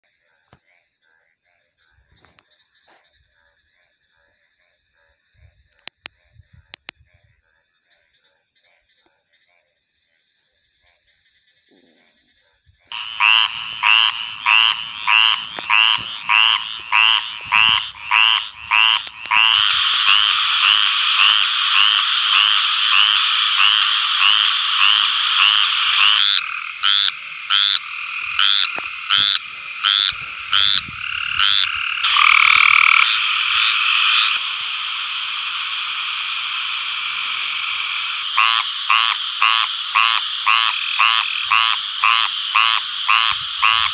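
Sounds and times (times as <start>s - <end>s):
frog chorus: 0.0s - 43.9s
tree frogs calling: 12.9s - 43.9s.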